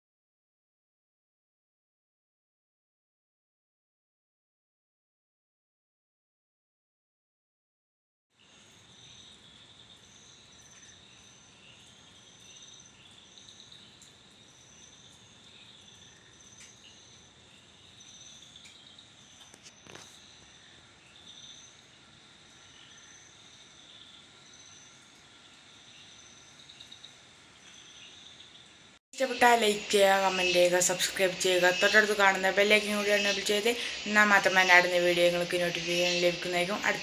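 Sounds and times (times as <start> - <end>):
crickets chirping: 8.4 - 37.0.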